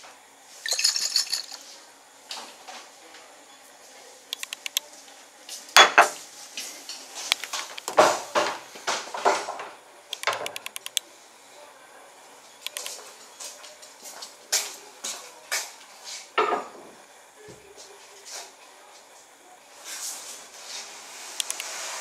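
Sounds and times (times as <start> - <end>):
glass clinks: 0.7 - 1.6
glassware knocking on tile floor: 5.8 - 6.2.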